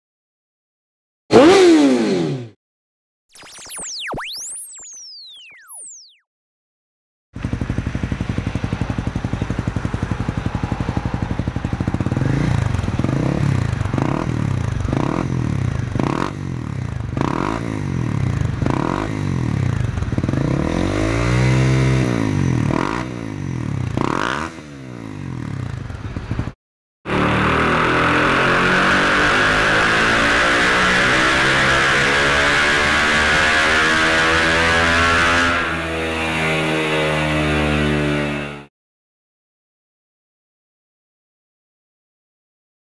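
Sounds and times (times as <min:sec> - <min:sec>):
motorcycle engine revving: 0:01.3 - 0:02.6, 0:07.4 - 0:38.7.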